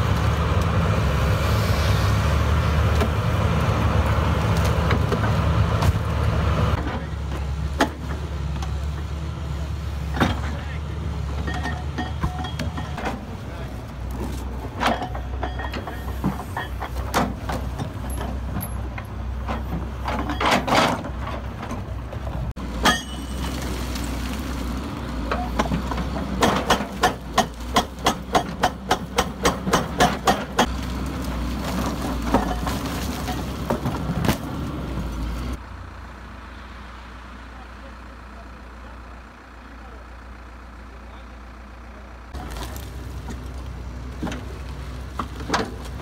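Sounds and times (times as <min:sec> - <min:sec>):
excavator diesel engine running: 0:00.0 - 0:46.0.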